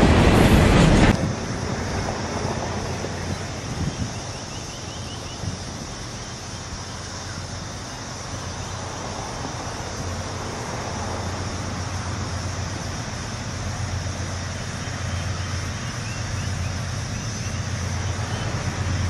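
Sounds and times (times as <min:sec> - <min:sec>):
wind rumbling on microphone: 0:00.0 - 0:14.5
diesel locomotive drone: 0:00.0 - 0:19.0.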